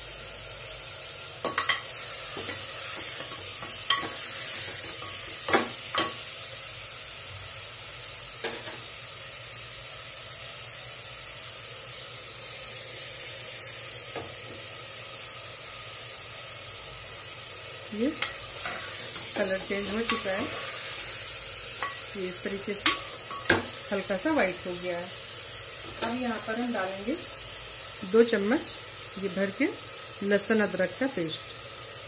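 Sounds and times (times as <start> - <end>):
meat sizzling in hot oil: 0.0 - 32.0.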